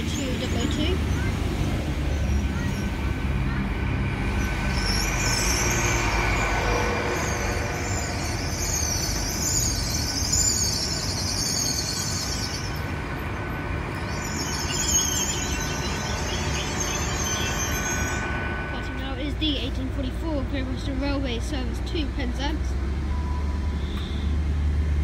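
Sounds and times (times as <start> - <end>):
train low rumble: 0.0 - 25.0
high-pitched wheel squeal: 4.4 - 19.6.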